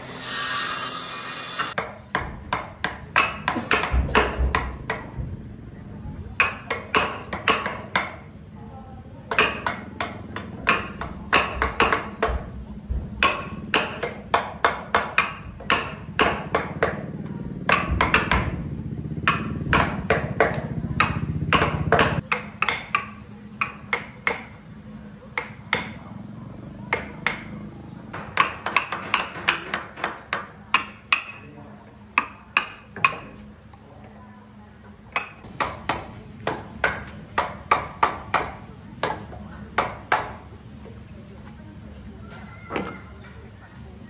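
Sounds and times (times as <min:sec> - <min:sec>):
sharp knocks: 0:17.6 - 0:18.6, 0:19.2 - 0:24.5.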